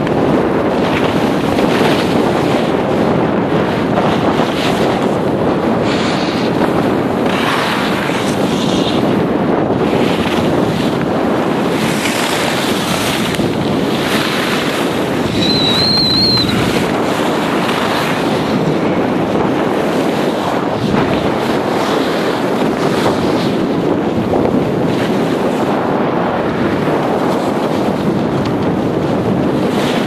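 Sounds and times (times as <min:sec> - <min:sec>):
wind rushing over microphone: 0:00.0 - 0:30.0
ski edges scraping snow: 0:07.2 - 0:09.0
brief high squeak: 0:15.4 - 0:16.6.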